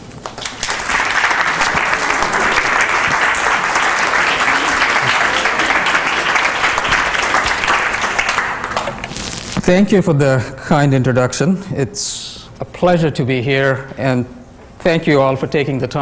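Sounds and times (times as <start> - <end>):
audience applause: 0.0 - 9.2.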